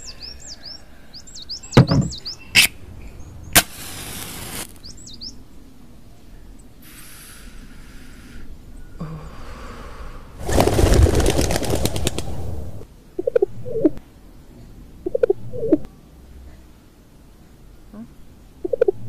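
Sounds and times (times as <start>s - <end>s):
small birds chirping: 0.0s - 3.6s, 4.7s - 9.5s
hiss: 3.6s - 4.7s, 6.8s - 8.5s.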